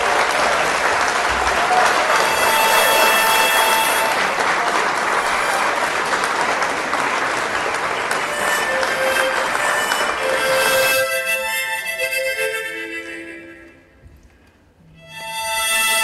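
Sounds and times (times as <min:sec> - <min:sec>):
audience applauding: 0:00.0 - 0:12.5
held musical notes: 0:01.9 - 0:06.0, 0:08.0 - 0:16.0.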